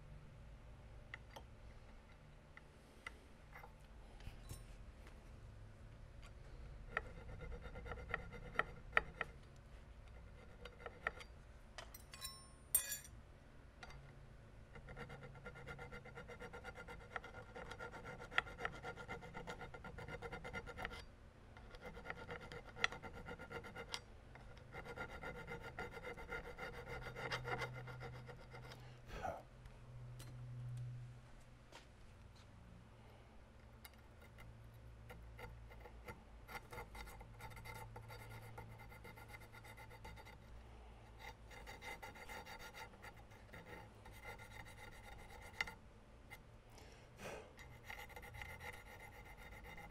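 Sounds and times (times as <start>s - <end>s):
hand file rasping on metal: 6.9s - 9.3s, 14.8s - 21.0s, 21.7s - 28.8s, 33.9s - 40.5s, 41.1s - 45.8s, 47.6s - 49.9s
ringing metal clink: 11.9s - 13.2s.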